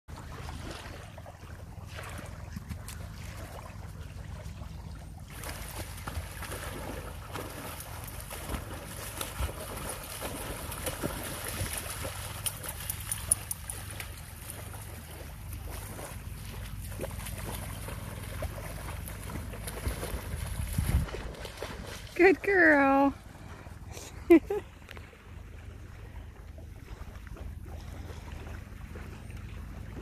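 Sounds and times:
steady low rumble: 0.2s - 22.2s
dog splashing through water: 0.2s - 23.8s.

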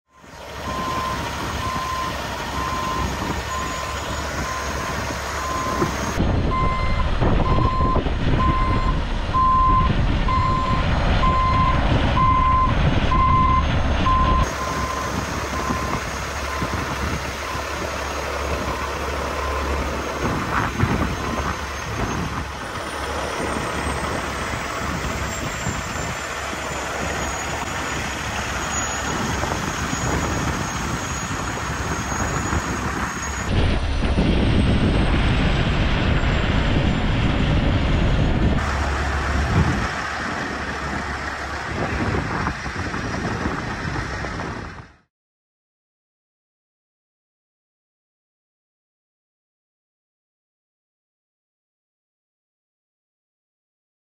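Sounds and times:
vehicle reversing alarm beeping: 0.1s - 20.1s, 20.9s - 22.3s
low rumble: 0.2s - 45.0s.

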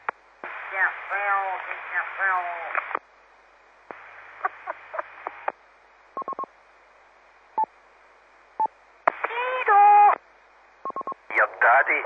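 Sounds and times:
radio hiss: 0.0s - 3.0s, 3.9s - 5.6s, 9.0s - 10.1s, 11.3s - 12.0s.

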